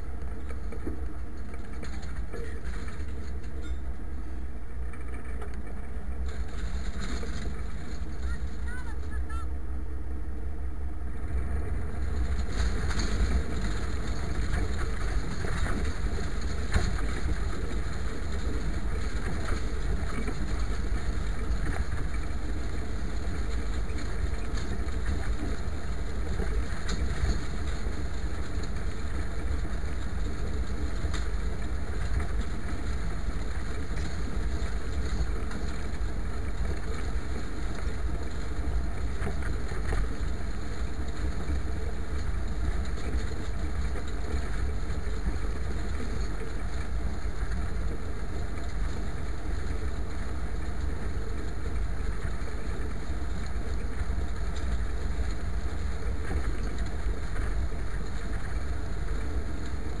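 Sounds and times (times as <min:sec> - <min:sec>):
tractor diesel engine running: 0:00.0 - 1:00.0.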